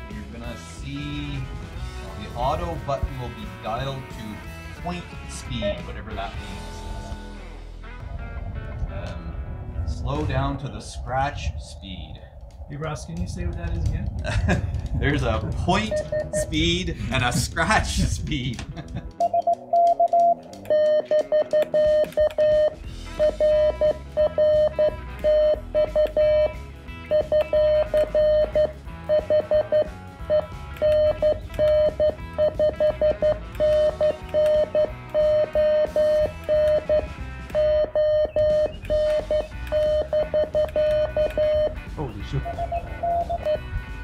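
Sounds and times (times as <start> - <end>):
background music with drums: 0.0 - 7.3, 13.9 - 44.0
morse code beeps: 15.8 - 16.7, 19.2 - 44.0.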